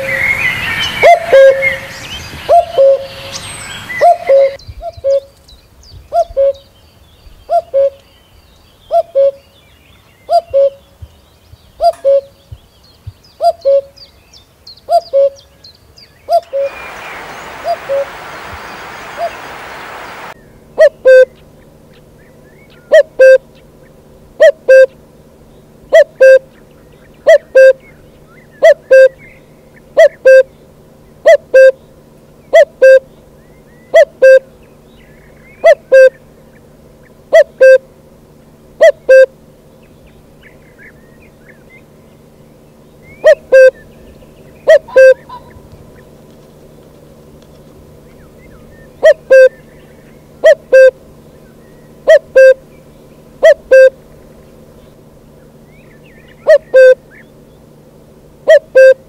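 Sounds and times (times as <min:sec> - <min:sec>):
faint steady hum: 0:00.0 - 0:59.0
dove cooing: 0:16.3 - 0:21.2, 0:44.7 - 0:45.7, 0:49.0 - 0:49.6, 0:50.4 - 0:51.0, 0:52.0 - 0:52.6, 0:53.4 - 0:54.0, 0:56.4 - 0:57.0, 0:58.5 - 0:59.0
hiss: 0:16.5 - 0:20.4.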